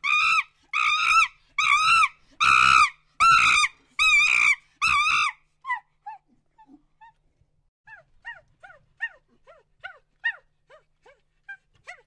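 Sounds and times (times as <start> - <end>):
monkey screaming: 0.0 - 5.4.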